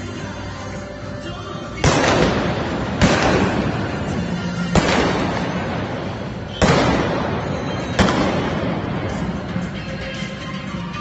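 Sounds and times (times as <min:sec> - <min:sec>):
gunshots echoing indoors: 0:01.8 - 0:09.6.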